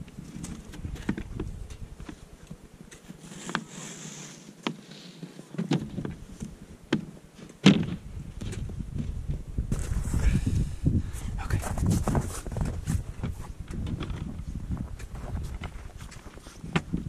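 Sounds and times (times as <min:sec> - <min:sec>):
hollow wooden knocks and thumps: 0:05.6 - 0:09.9, 0:12.1 - 0:17.0.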